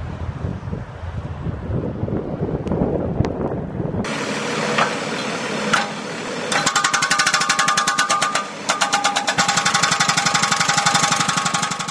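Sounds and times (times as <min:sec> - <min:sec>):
small engine knocking: 0:05.7 - 0:11.9.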